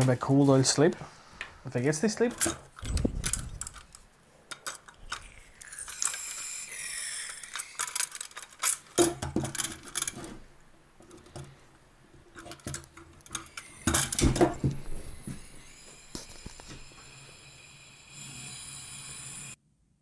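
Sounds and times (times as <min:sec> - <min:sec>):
metal parts clattering: 0:02.3 - 0:10.5, 0:12.3 - 0:14.6
gas hiss: 0:05.0 - 0:07.9, 0:13.5 - 0:19.6.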